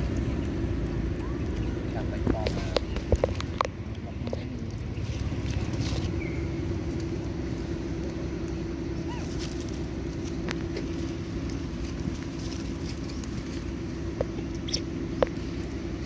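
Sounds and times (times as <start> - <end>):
motor humming: 0.0 - 16.0.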